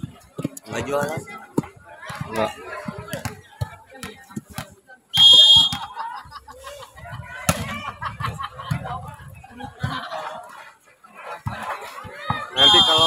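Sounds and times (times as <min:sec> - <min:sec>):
scattered voices: 0:00.0 - 0:13.0
referee's whistle blast: 0:05.2 - 0:05.9, 0:12.6 - 0:13.0.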